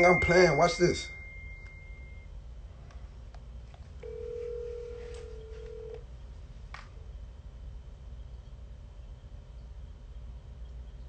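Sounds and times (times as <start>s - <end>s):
telephone ringback tone: 0.0s - 2.3s, 4.0s - 6.0s.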